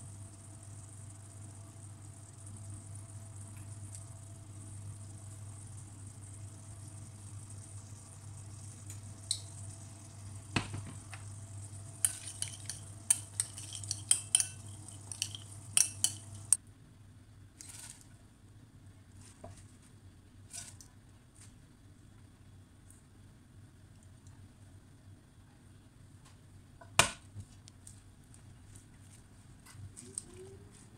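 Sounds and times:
spoon clinking against ceramic bowl: 12.0s - 16.6s.

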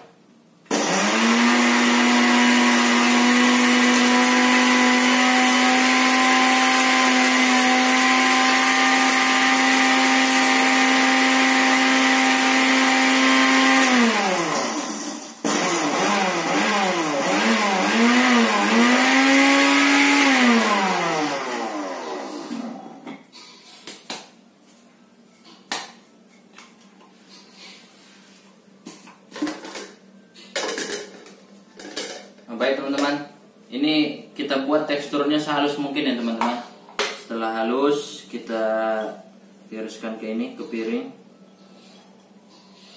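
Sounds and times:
blender motor whining: 0.7s - 23.0s.

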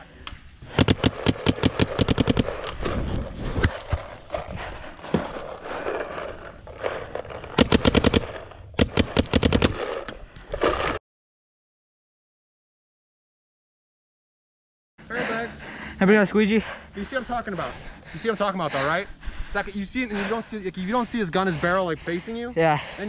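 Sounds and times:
paintball marker rapid firing: 0.7s - 2.8s, 7.5s - 10.0s
rustling and scraping: 1.0s - 11.0s.

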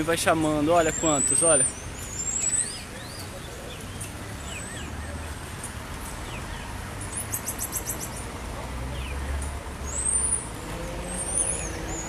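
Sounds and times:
marmosets chirping and whistling: 0.8s - 3.3s, 7.1s - 8.2s.

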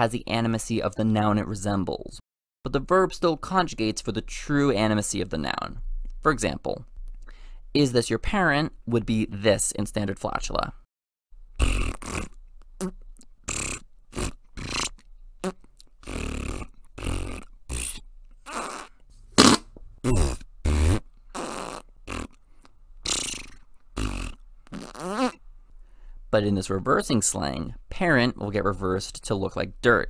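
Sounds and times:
short fart sounds: 11.6s - 22.4s, 23.0s - 25.4s.

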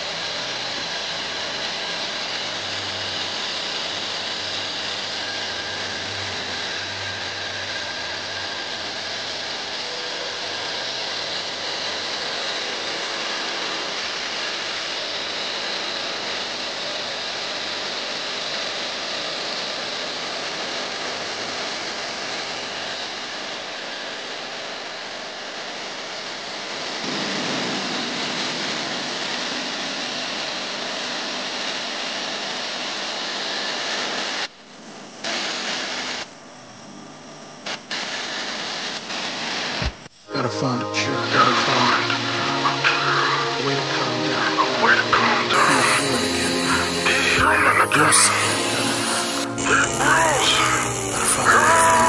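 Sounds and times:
line boring machine whirring: 0.0s - 36.2s, 42.5s - 52.0s.

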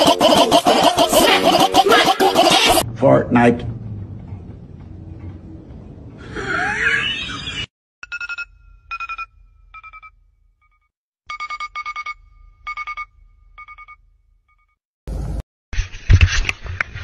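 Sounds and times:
low hum: 2.9s - 6.4s
electronic telephone ringtone: 8.0s - 10.1s, 11.3s - 14.0s.

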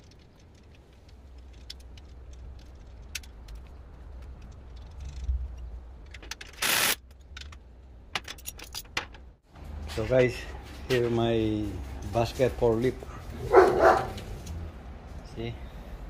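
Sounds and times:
locking pliers clicking and rattling: 0.0s - 9.4s.

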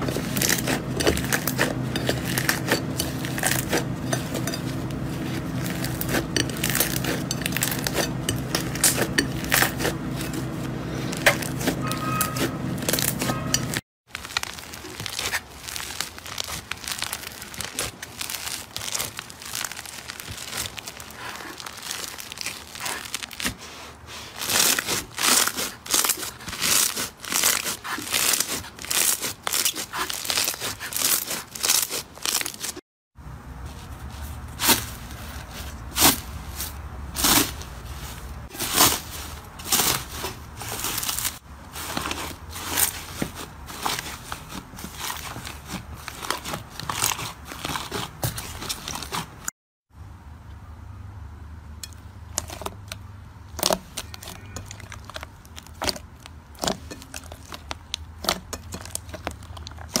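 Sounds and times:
slime crackling and popping: 0.0s - 10.4s, 12.4s - 23.6s, 24.4s - 32.8s, 38.5s - 49.2s, 53.5s - 60.0s.

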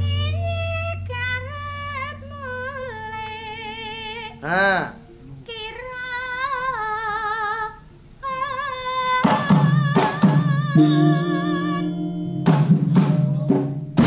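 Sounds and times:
woman singing with vibrato: 0.0s - 4.5s, 5.5s - 13.9s
accompanying instruments: 9.2s - 14.0s
drum strokes: 9.2s - 14.0s.

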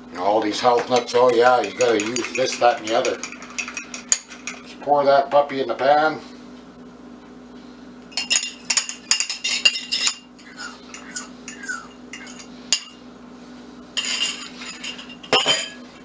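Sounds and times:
metal utensil clinking on bowl: 0.8s - 4.7s, 8.2s - 13.0s, 14.0s - 15.8s.

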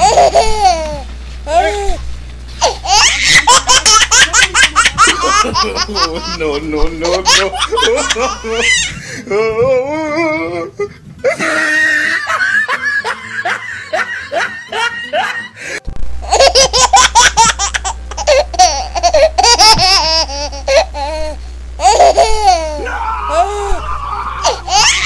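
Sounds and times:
loud laughter: 2.9s - 9.0s, 11.2s - 15.6s, 21.8s - 25.0s.

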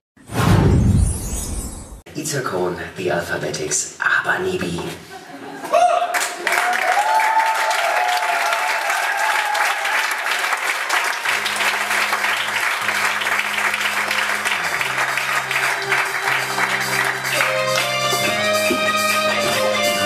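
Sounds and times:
audience applauding: 6.0s - 20.0s.

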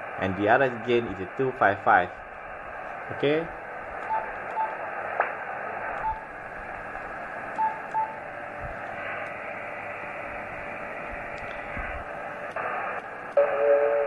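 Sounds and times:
radio receiver hiss: 0.0s - 14.0s.

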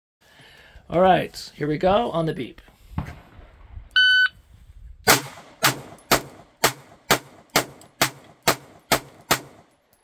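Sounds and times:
pistol shots: 5.1s - 9.7s.

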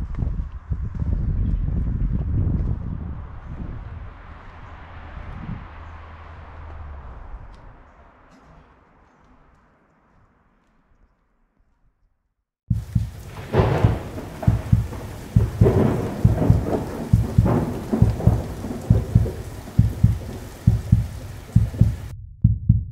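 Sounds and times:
thunder and rain-like noise: 12.7s - 22.1s
low uneven thuds: 12.7s - 22.9s.

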